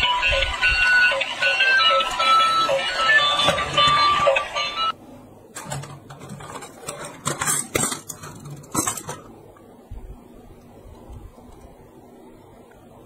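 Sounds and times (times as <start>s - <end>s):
toy train electronic tune: 0.0s - 4.9s.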